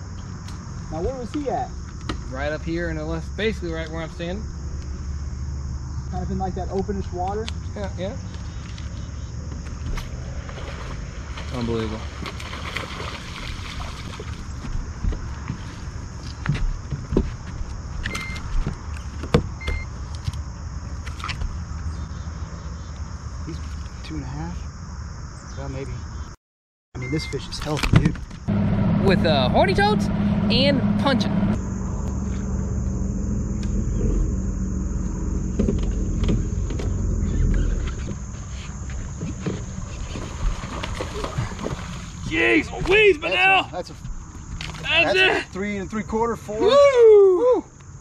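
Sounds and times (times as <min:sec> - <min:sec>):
high insect drone: 0:00.0 - 0:26.4, 0:27.1 - 0:48.0
short electronic beeps: 0:18.2 - 0:18.4, 0:27.0 - 0:27.5
low rumble: 0:28.5 - 0:41.9.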